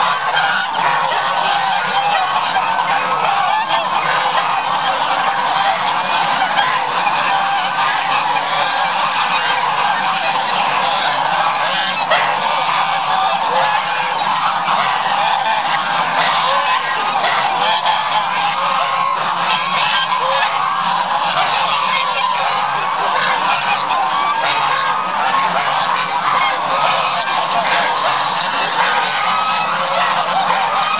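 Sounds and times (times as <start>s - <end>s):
geese honking: 0.0s - 30.9s.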